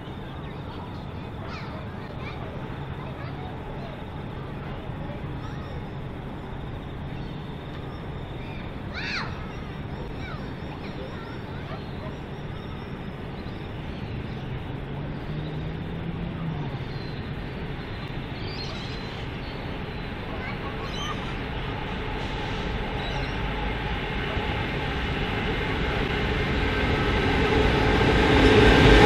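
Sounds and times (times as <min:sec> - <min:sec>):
bird calling: 0:00.0 - 0:04.0, 0:07.1 - 0:14.6, 0:16.7 - 0:23.6
locomotive engine drone: 0:00.0 - 0:29.0.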